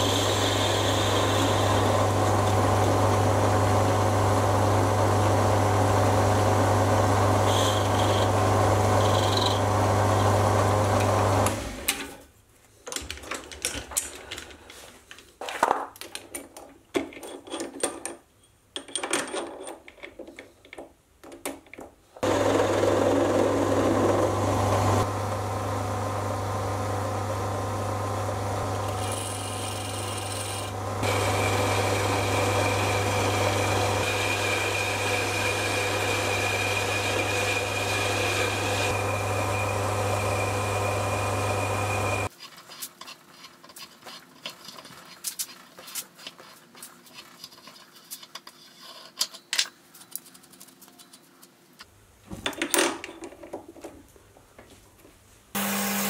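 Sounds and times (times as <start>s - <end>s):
lathe motor hum: 0.0s - 11.8s, 22.2s - 42.3s, 55.6s - 56.0s.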